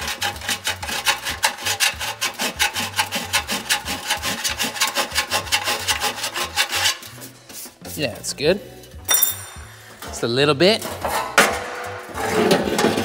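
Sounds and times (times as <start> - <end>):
hand file rasping on metal: 0.0 - 7.4.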